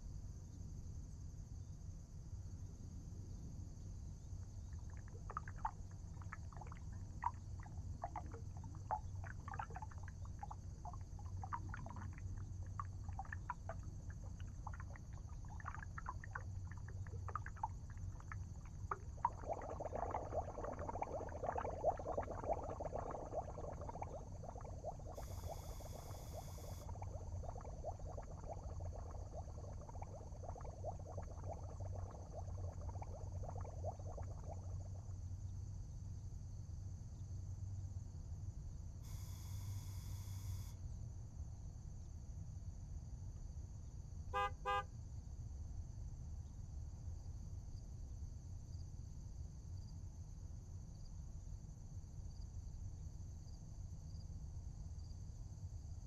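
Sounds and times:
low steady hum: 0:02.4 - 0:42.3, 0:43.0 - 0:44.8
water bubbling: 0:04.7 - 0:35.1, 0:44.4 - 0:44.8.

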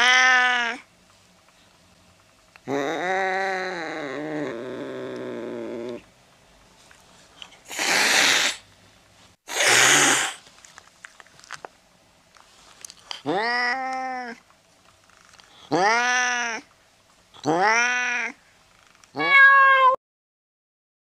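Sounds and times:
cat meowing: 0:00.0 - 0:00.8, 0:15.7 - 0:16.6, 0:17.4 - 0:18.4, 0:19.2 - 0:20.0.

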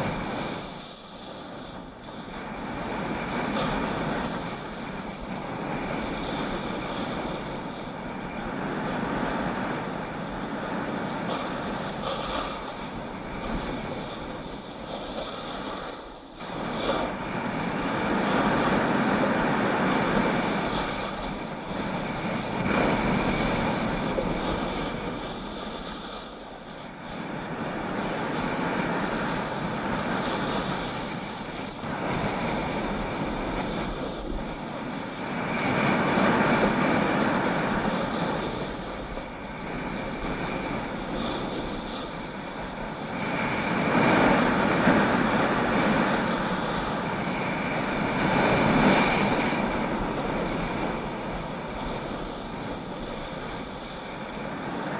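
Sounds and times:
wind on microphone: 0:00.0 - 0:54.9
skis scraping on snow: 0:11.2 - 0:54.8.

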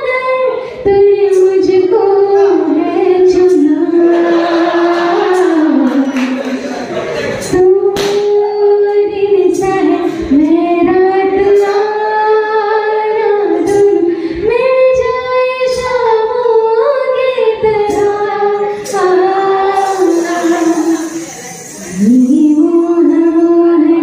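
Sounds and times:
vocal group singing long notes: 0:02.3 - 0:08.2, 0:17.8 - 0:24.0.

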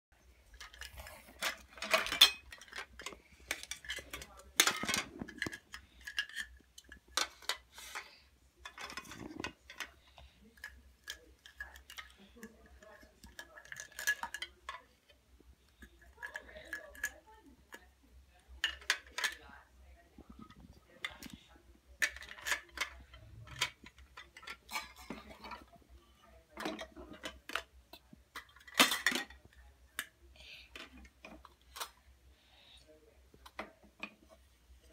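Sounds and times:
plastic toy cookware clattering: 0:00.5 - 0:10.0, 0:10.6 - 0:15.1, 0:15.9 - 0:17.8, 0:18.6 - 0:19.5, 0:22.0 - 0:30.1.

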